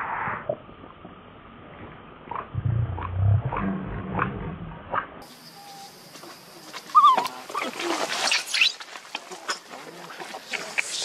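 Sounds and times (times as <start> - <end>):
monkey grunting rumble: 2.6 - 4.9
young monkey squealing: 6.9 - 7.7.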